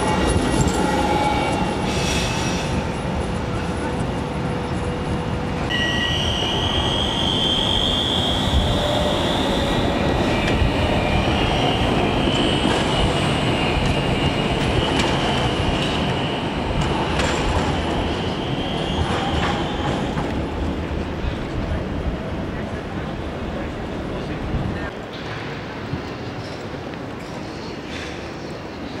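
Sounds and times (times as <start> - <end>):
tram wheels squealing: 0.0 - 21.5.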